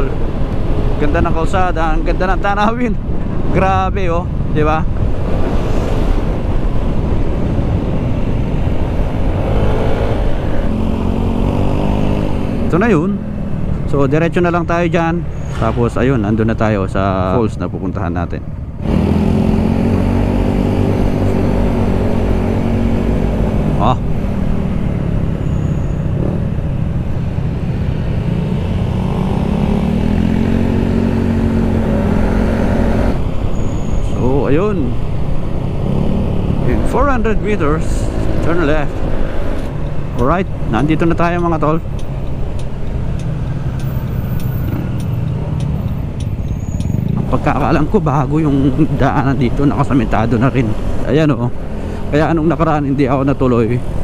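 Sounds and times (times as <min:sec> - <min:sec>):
wind rumble on microphone: 0:00.0 - 0:12.7
wind rushing over microphone: 0:00.0 - 0:54.0.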